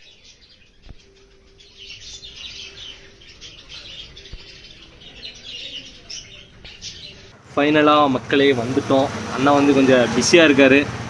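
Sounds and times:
small birds chirping: 0.0 - 7.4.

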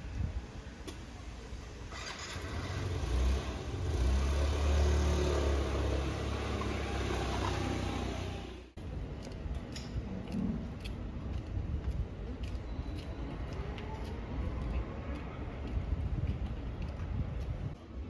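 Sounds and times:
scooter engine rumbling: 1.9 - 8.8.

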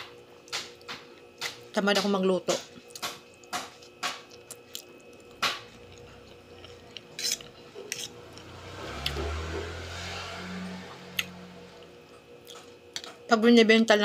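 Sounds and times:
chewing with wet mouth clicks: 2.9 - 7.5
low hum: 4.3 - 13.1.

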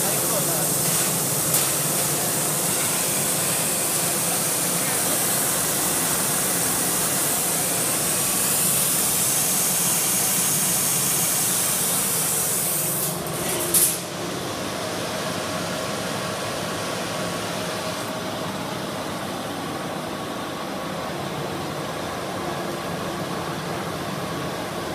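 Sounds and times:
hiss of air: 0.5 - 14.0.

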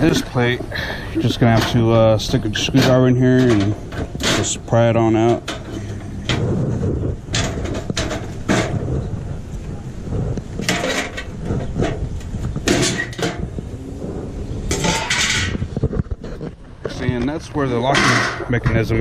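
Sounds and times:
metal scrapes and clanks: 1.2 - 8.8, 14.7 - 17.0, 17.9 - 18.6.

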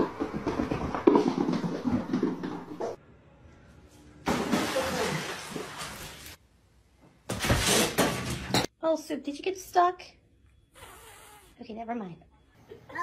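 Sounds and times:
cat splashing in water: 4.3 - 6.4.

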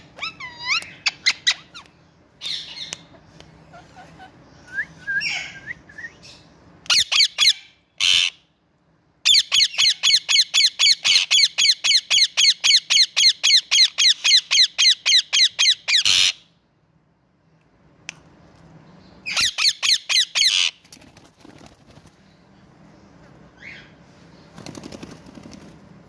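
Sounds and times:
parakeets screeching: 0.1 - 1.8, 19.3 - 20.8.

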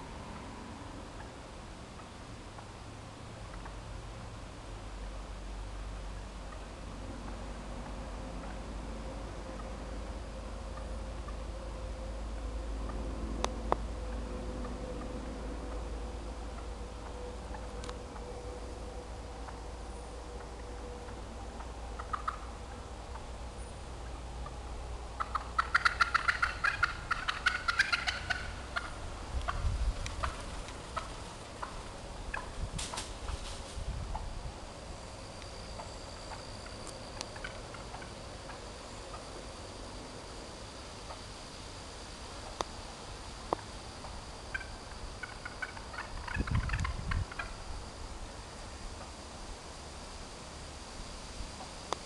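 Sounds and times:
wild turkeys calling: 0.0 - 2.8, 3.4 - 4.1, 5.2 - 33.5, 35.2 - 39.6, 41.0 - 41.3, 43.4 - 47.7.

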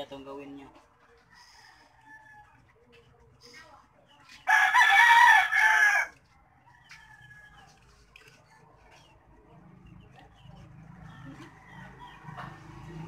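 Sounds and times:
rooster crowing: 4.5 - 7.7, 11.0 - 13.0.

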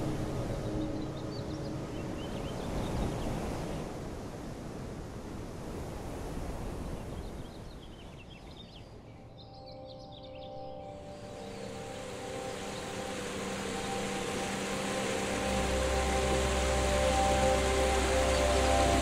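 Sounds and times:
wind rushing on microphone: 0.0 - 8.8.

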